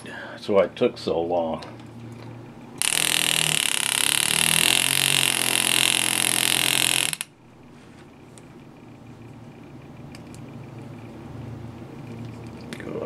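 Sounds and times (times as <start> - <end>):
air graver hissing and buzzing: 2.8 - 8.0.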